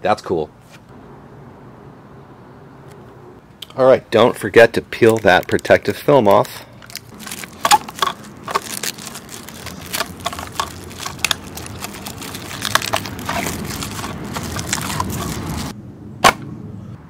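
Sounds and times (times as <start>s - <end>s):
plastic film crinkling: 4.9s - 15.7s.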